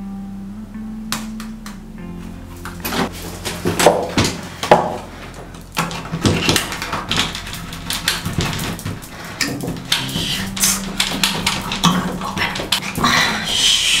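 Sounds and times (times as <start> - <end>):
metal doorknob rattling and clicking: 3.5 - 13.0.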